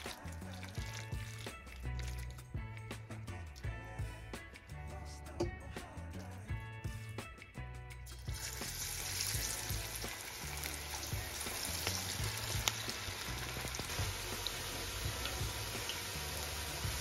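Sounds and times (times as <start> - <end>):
food deep-frying in hot oil: 0.0 - 2.7, 8.1 - 17.0
background music with bass: 0.0 - 17.0.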